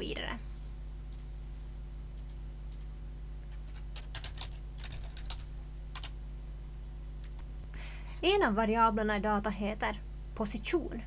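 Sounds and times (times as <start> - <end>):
typing on computer keyboard: 2.2 - 5.4.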